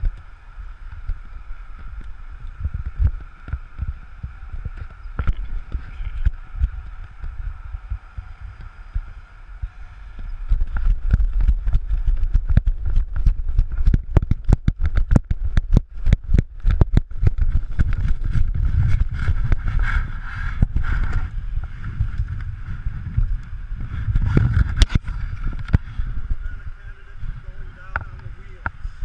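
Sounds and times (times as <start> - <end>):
wind buffeting microphone: 0.0 - 29.0
running footsteps knocking through frame: 10.4 - 26.4.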